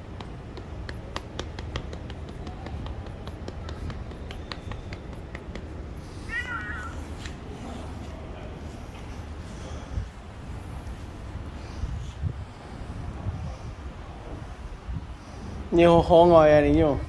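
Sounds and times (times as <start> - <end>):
cat meowing: 6.2 - 7.2.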